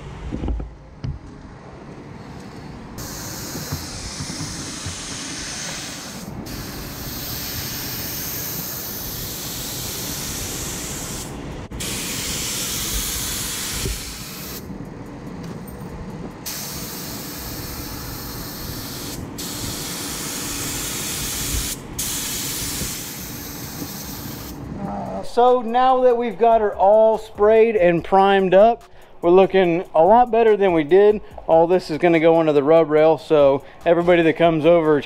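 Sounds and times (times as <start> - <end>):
spray gun hissing: 3.0 - 14.6, 16.5 - 24.6.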